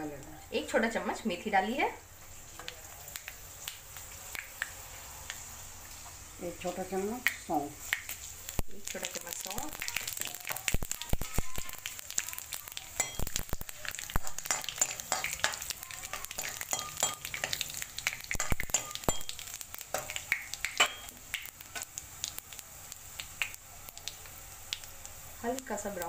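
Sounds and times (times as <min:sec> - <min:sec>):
seeds sizzling and popping in oil: 0:00.0 - 0:26.0
metal ladle stirring in pan: 0:13.0 - 0:21.1.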